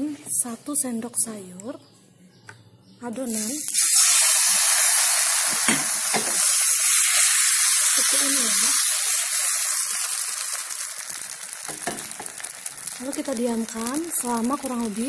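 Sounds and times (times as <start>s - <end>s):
batter sizzling in a frying pan: 3.3s - 15.0s.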